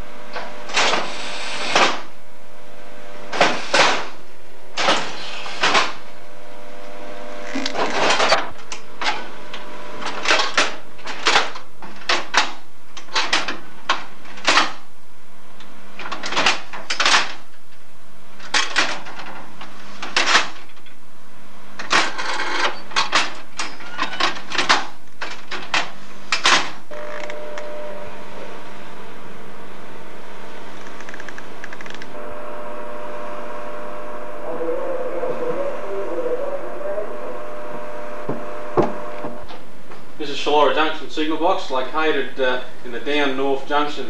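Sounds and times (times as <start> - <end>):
faint hum: 0.0 - 44.0
sharp clunks and clicks: 38.3 - 39.6.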